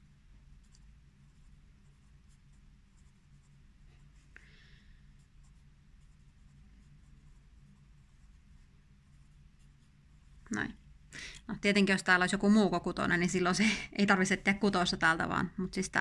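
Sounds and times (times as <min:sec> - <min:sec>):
pencil scratching on paper: 0:00.6 - 0:04.3, 0:05.1 - 0:10.6.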